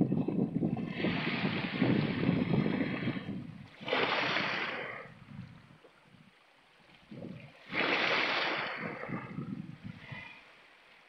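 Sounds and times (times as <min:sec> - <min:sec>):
waves splashing over rocks: 0:03.6 - 0:05.1, 0:07.6 - 0:09.4.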